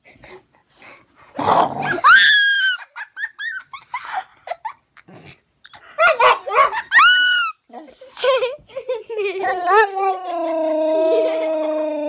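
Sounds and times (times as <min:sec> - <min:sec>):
dog growling: 0:01.3 - 0:02.0
dog yipping and whimpering: 0:06.2 - 0:07.6.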